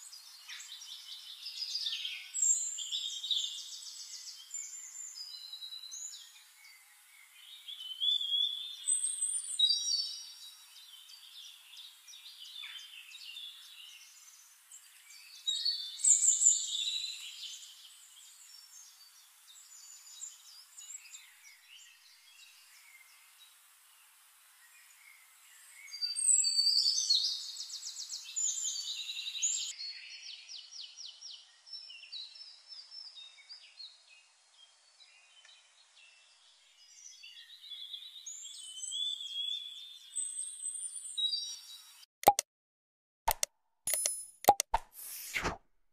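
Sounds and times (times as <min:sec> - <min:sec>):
faint hiss: 0:00.0 - 0:29.7
songbirds chirping and trilling: 0:00.0 - 0:42.0.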